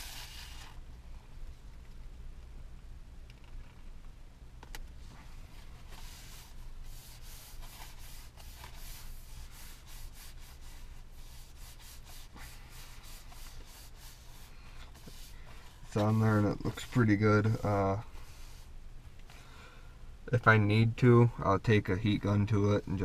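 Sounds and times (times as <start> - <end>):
hands rubbing a sticker: 0.0 - 0.8, 5.1 - 18.7.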